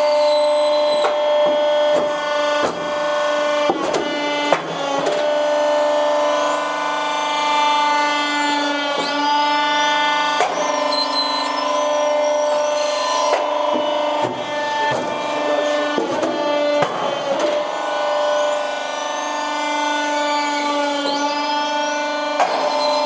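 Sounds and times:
machine motor humming: 0.9 - 23.0
thin high squeaks: 10.5 - 13.7.

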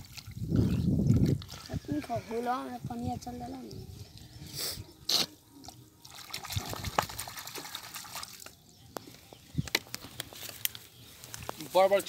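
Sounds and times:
hand squelching in wet mud: 0.0 - 2.3.

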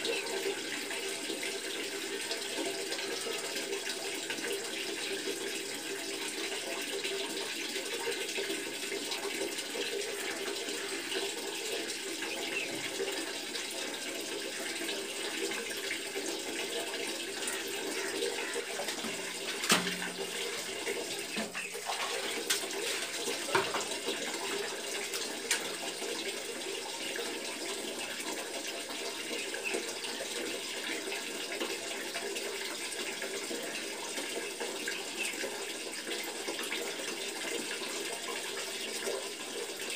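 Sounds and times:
water splashing on tiled floor: 15.3 - 26.4.

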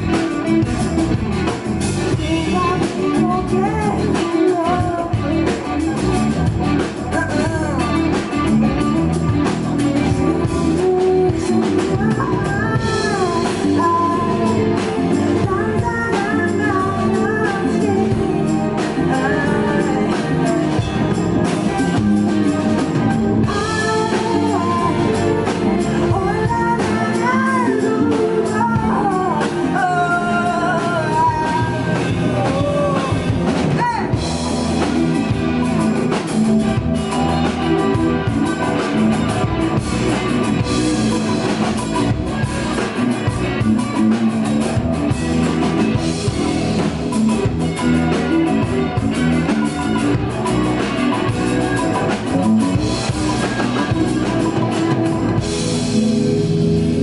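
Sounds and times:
rock band playing: 0.0 - 57.0
woman singing: 2.1 - 9.0, 10.0 - 22.4, 23.4 - 34.2.

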